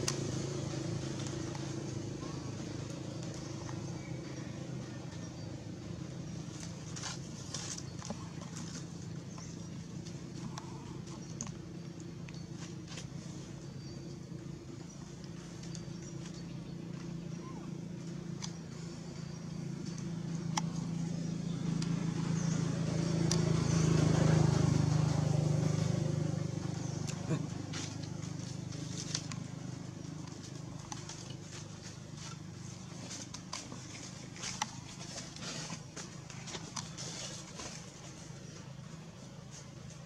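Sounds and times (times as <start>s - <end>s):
low motor hum: 0.0s - 40.0s
footsteps on dry leaves: 6.4s - 10.2s, 27.6s - 38.5s.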